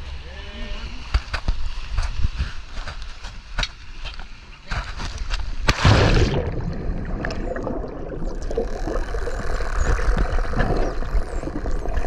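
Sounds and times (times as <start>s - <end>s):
underwater water rumble: 5.8s - 12.0s
sharp underwater clicks: 7.2s - 12.0s.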